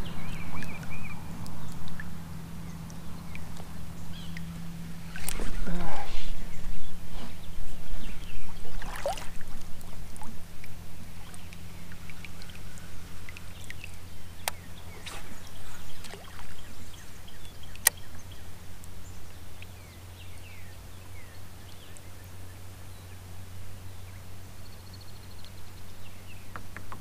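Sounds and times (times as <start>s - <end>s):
water lapping against kayak hull: 0.0s - 22.1s
steady low hum: 0.0s - 27.0s
sharp clicks: 13.3s - 15.2s, 17.6s - 18.0s.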